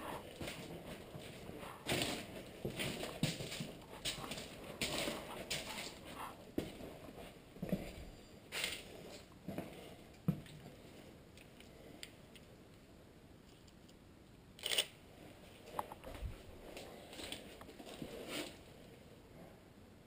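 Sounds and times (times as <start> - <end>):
footsteps crunching on debris: 0.1 - 8.0.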